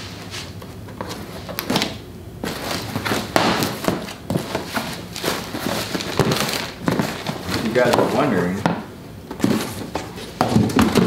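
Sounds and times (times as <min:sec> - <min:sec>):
plastic bags rustling: 0:00.0 - 0:08.7
cardboard flaps handled: 0:00.9 - 0:11.0.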